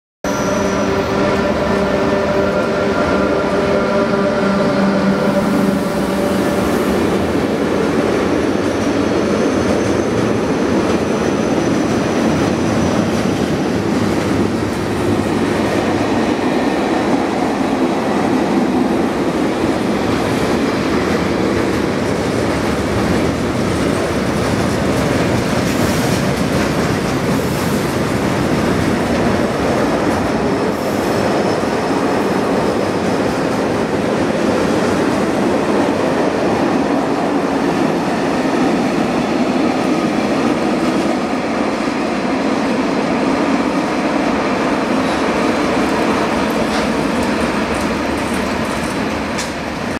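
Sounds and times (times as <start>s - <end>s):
high wheel squeal: 0.3s - 7.0s
train wheels rumbling on rail: 0.3s - 49.9s.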